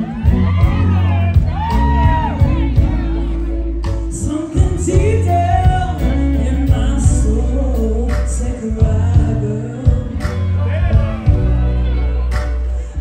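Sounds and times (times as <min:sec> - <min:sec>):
electric guitar: 0:00.0 - 0:13.0
live band playing: 0:00.0 - 0:13.0
woman singing into a microphone: 0:02.0 - 0:10.7.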